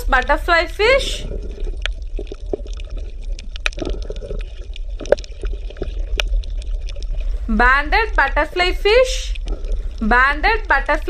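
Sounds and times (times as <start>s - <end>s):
water bubbling and gurgling: 0.0s - 11.0s
small pops and clicks: 1.8s - 7.2s.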